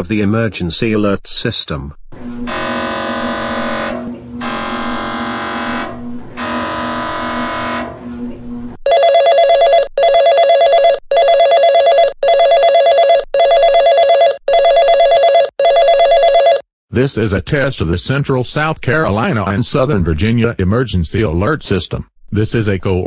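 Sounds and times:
buzzy electronic bursts: 0:02.2 - 0:08.8
trilling alert tone: 0:02.2 - 0:11.4.

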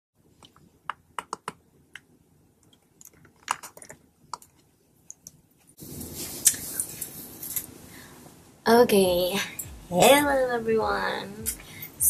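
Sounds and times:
sharp clicks and taps: 0:00.4 - 0:05.4.

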